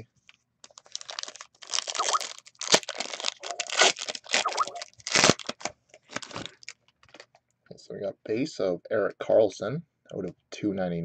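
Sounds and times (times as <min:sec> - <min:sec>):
plastic wrapping tearing and crinkling: 0:00.6 - 0:07.4.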